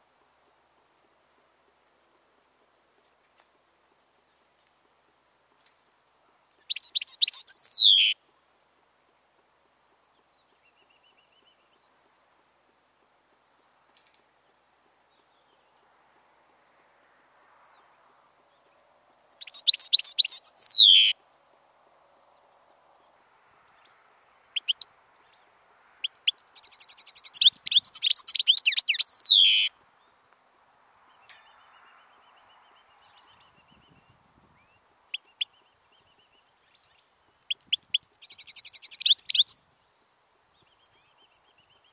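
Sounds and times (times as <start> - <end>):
goldfinch twittering song: 6.6 - 8.2, 18.6 - 21.2, 26.0 - 29.7, 31.1 - 39.6.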